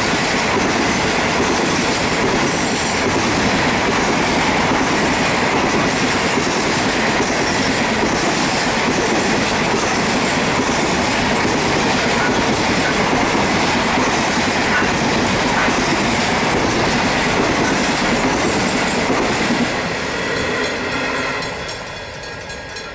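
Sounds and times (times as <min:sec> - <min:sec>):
train wagons rumbling past: 0:00.0 - 0:22.9.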